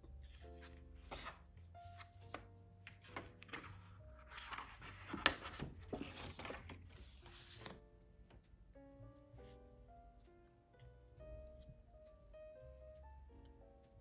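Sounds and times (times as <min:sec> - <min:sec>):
quiet background music: 0:00.0 - 0:14.0
paper rustling and scraping: 0:00.2 - 0:07.8.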